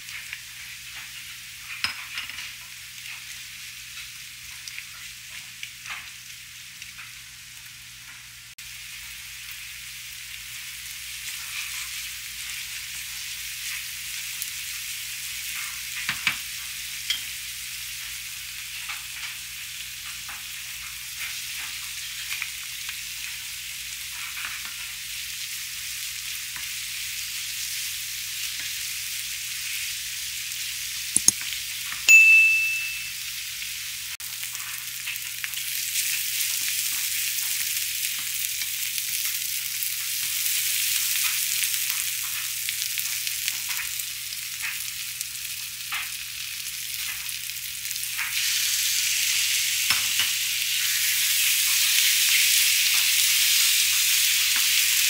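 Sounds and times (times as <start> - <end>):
vegetables sizzling in a frying pan: 0.0 - 32.1, 32.9 - 55.0
spoon clicks: 31.2 - 31.4, 32.1 - 33.2
short ding: 32.1 - 33.2.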